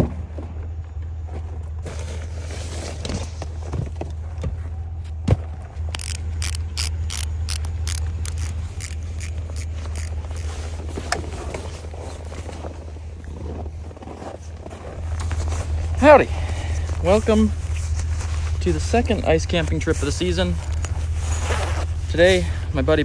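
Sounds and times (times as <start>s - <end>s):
steady low hum: 0.0s - 23.0s
fabric rustling and scraping: 9.5s - 16.0s, 17.2s - 19.2s, 19.9s - 22.1s.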